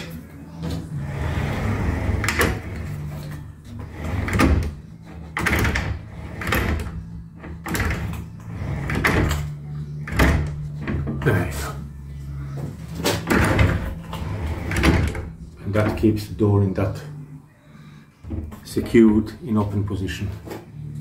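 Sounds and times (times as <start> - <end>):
sliding door wheels rolling: 0.7 - 11.7, 12.8 - 16.2.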